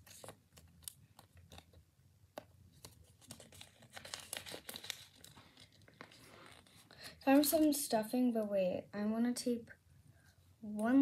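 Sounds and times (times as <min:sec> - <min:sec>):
craft material crinkling: 0:00.0 - 0:01.8, 0:02.7 - 0:07.9.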